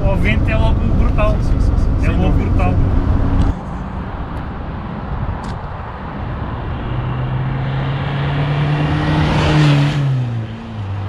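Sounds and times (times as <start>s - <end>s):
van engine passing by: 0.0s - 5.3s, 6.0s - 11.0s
tyre and wind noise: 1.6s - 7.5s.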